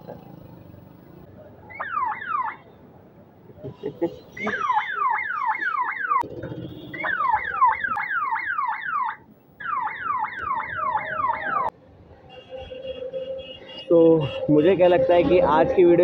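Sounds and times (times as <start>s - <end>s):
police-style siren yelping: 1.7s - 2.6s, 4.4s - 6.2s, 6.9s - 11.7s.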